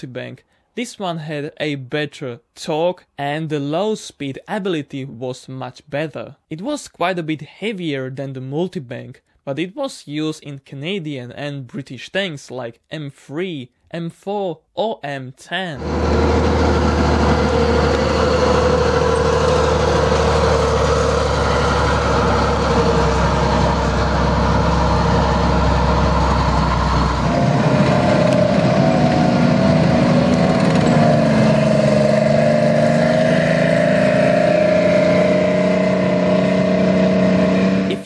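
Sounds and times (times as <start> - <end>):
diesel engines running with whine: 15.8 - 38.0.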